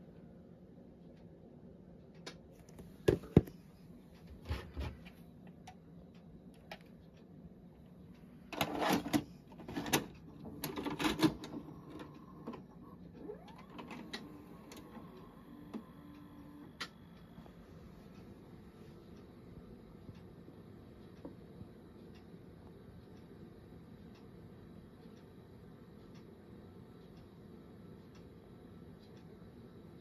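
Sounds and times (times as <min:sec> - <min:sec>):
motor hum: 0:02.2 - 0:21.8
tape deck mechanism whir: 0:08.5 - 0:17.0.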